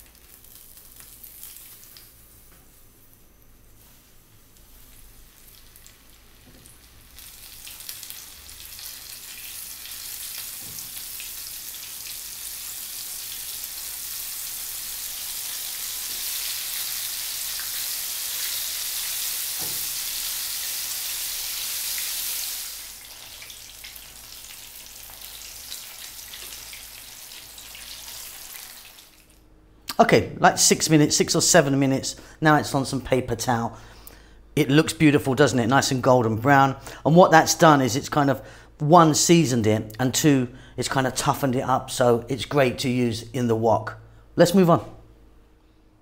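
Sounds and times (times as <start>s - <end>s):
fish fillets sizzling in oil: 3.8s - 29.3s.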